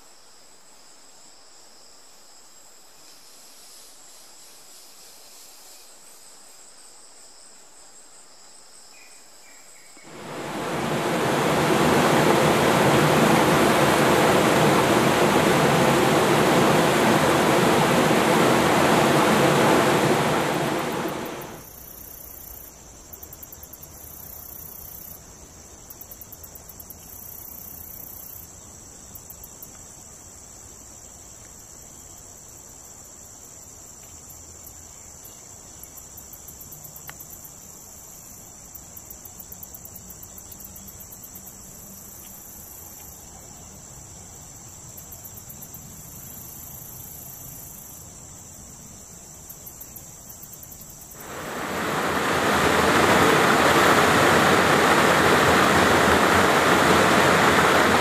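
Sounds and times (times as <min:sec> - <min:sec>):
insects buzzing and chirping: 0:00.0 - 0:54.7
loud even rushing noise: 0:10.1 - 0:21.6, 0:51.2 - 0:58.0.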